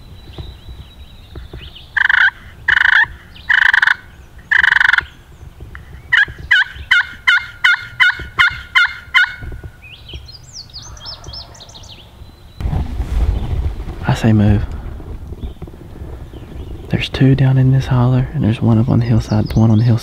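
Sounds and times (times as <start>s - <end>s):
turkey call yelps: 2.0s - 5.1s, 6.1s - 9.5s.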